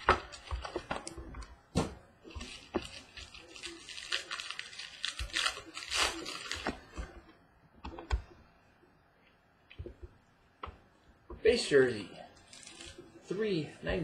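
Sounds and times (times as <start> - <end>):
plastic wrapping crinkling and tearing: 0.0 - 1.2, 2.2 - 7.0, 12.4 - 13.1.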